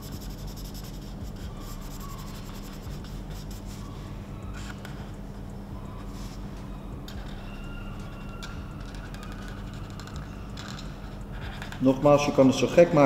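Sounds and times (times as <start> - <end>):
marker scratching on paper: 0.0 - 4.8
low hum: 0.0 - 13.0.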